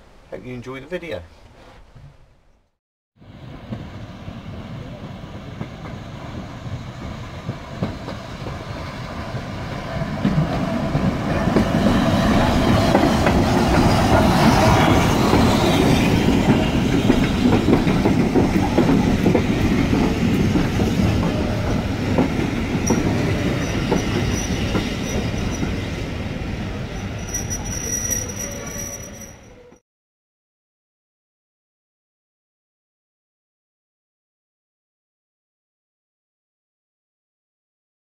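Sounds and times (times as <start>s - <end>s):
train wheels clicking over rail joints: 16.4s - 25.8s.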